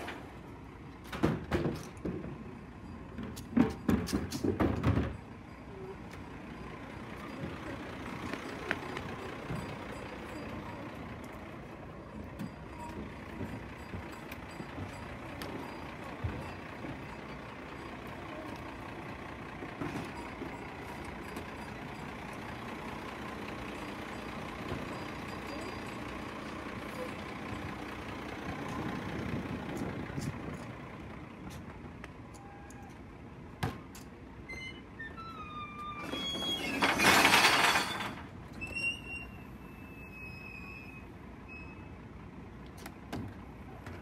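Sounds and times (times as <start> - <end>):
truck engine running: 0.0 - 32.2.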